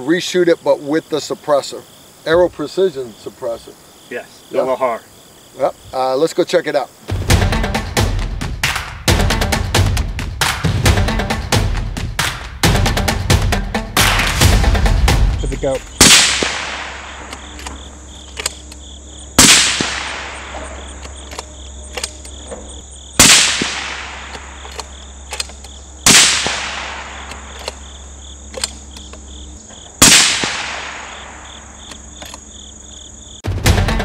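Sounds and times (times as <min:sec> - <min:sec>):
suppressed rifle shots with echo: 0:16.0 - 0:18.7, 0:19.4 - 0:22.3, 0:23.2 - 0:27.9, 0:30.0 - 0:32.0.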